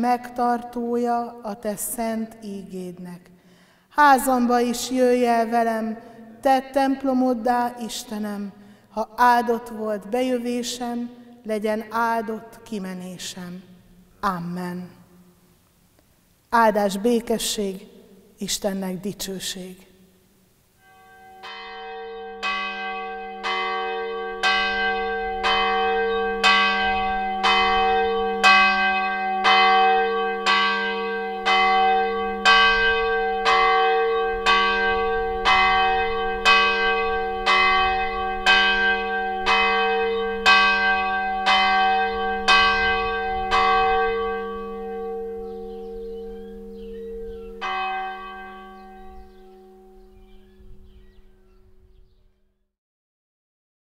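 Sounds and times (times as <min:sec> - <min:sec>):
church bell tolling: 0:20.8 - 0:51.9.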